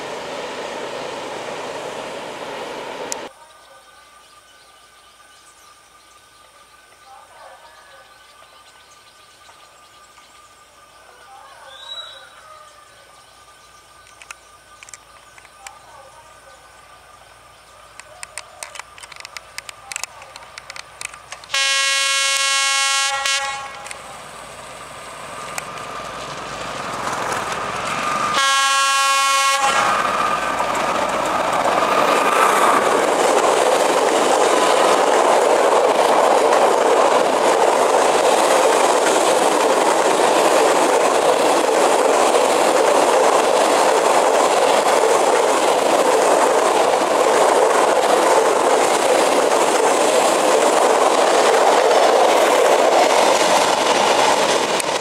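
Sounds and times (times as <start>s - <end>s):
freight train wheels rumbling: 0.0s - 3.8s, 8.1s - 55.0s
locomotive horn blasts: 21.5s - 24.0s, 28.3s - 30.0s.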